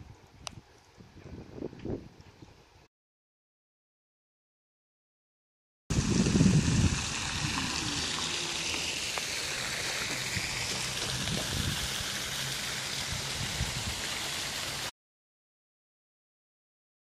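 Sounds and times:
fountain water splashing into basin: 5.9s - 14.9s.

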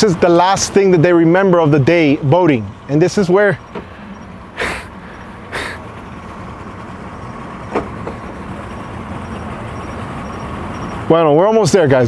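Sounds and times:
engines idling low rumble: 0.0s - 12.0s
short hissing bursts: 4.6s - 5.9s.

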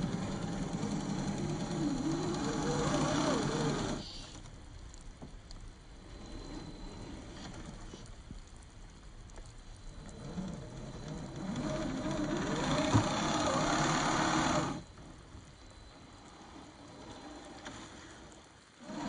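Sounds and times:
toy car motor whining: 0.0s - 4.4s, 10.0s - 14.8s.

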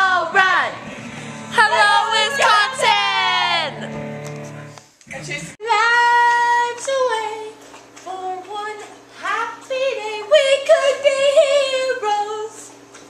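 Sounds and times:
girl singing wordless notes: 0.0s - 0.8s, 1.4s - 3.9s, 5.6s - 12.7s.

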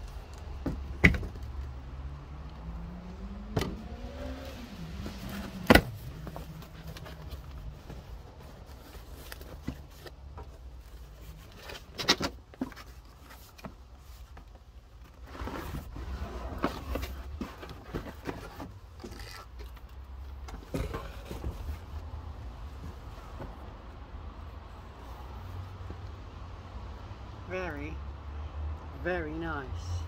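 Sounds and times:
cardboard rustling and scraping: 4.4s - 23.7s.

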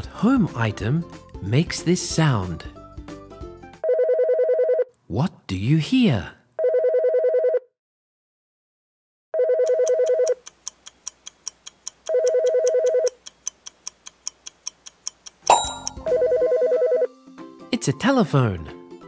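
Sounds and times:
electronic telephone ringer trilling: 9.4s - 10.4s, 12.1s - 13.2s, 15.5s - 17.1s
countdown clock ticking: 9.8s - 16.3s
short chime: 15.5s - 16.1s.

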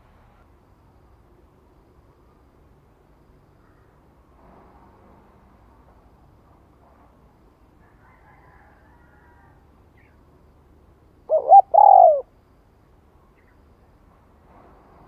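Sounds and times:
dove cooing: 11.3s - 12.3s.

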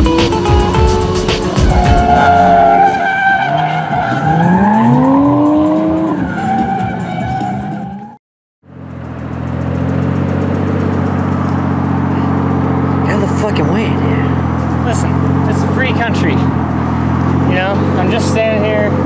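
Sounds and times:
car engines revving: 0.0s - 19.0s
tire squeal: 1.5s - 8.2s.

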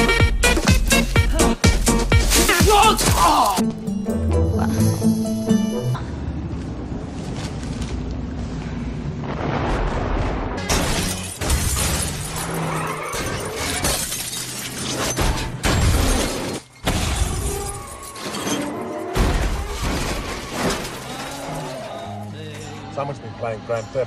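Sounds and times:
music: 0.0s - 6.0s, 20.7s - 24.0s
metal crashing: 10.6s - 21.9s
glass shattering: 10.7s - 22.0s.

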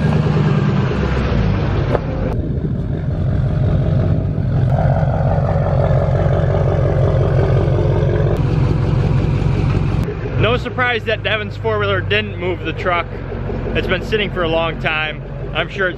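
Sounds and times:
diesel engine running: 0.0s - 15.9s
low exhaust pulsing: 0.0s - 15.9s.

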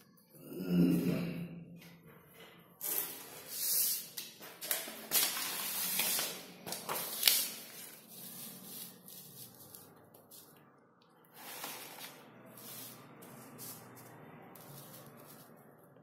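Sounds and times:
paper rustling and sliding: 2.8s - 10.5s, 11.3s - 15.8s.

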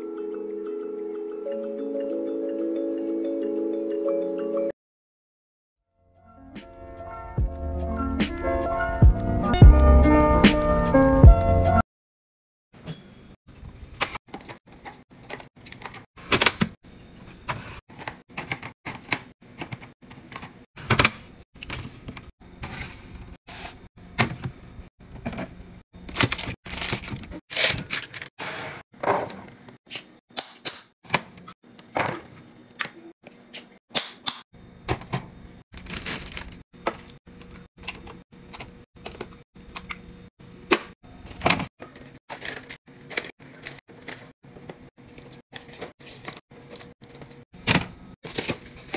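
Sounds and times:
plastic packages clicking and knocking: 26.0s - 28.3s, 35.8s - 40.1s, 48.2s - 48.9s.

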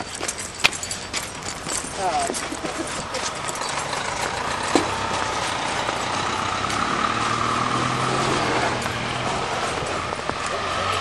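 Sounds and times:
diesel locomotive engine idling: 1.4s - 8.2s.

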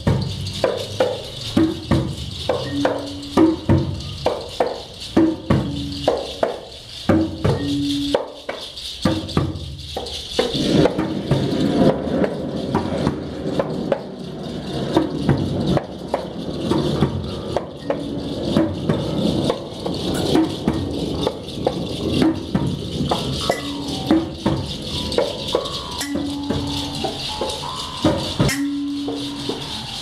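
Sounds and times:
percussion music: 0.0s - 30.0s.

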